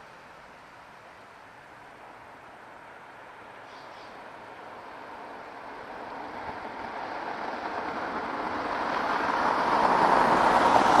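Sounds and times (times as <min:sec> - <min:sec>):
passing vehicle rushing: 0:02.7 - 0:11.0.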